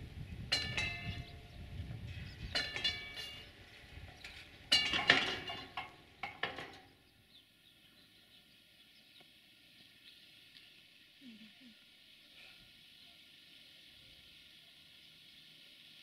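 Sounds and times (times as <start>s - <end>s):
train low rumble: 0.0s - 4.9s
metallic clanks over rail joints: 0.5s - 7.0s.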